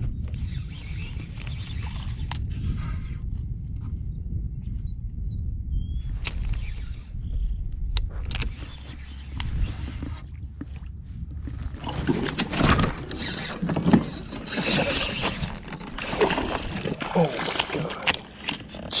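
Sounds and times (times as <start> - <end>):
wind rumbling on microphone: 0.0 - 19.0
fish fighting at kayak: 8.6 - 19.0.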